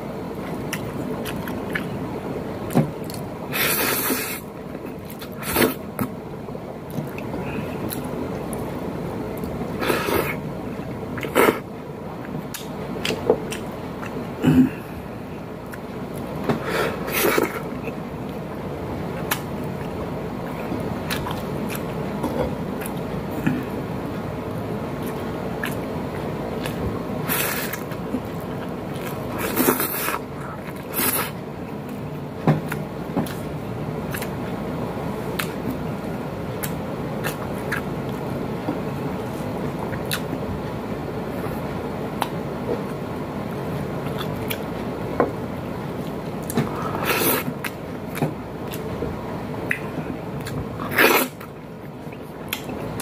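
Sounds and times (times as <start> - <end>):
air conditioning hum: 0.0 - 53.0
man chewing: 0.3 - 6.2, 6.8 - 53.0.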